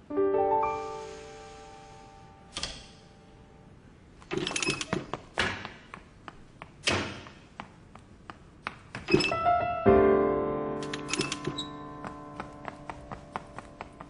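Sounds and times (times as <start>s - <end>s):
music: 0.0s - 3.2s, 9.3s - 14.0s.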